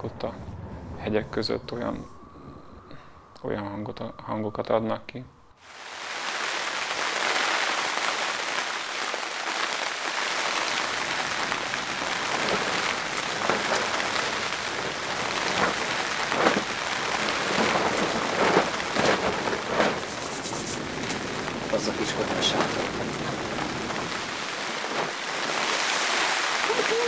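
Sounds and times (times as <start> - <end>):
rain on a tarp: 5.6 - 27.0.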